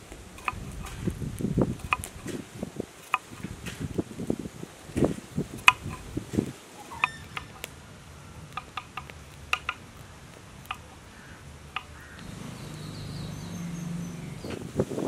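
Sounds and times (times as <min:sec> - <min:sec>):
knife chopping on wooden board: 0:00.4 - 0:01.0.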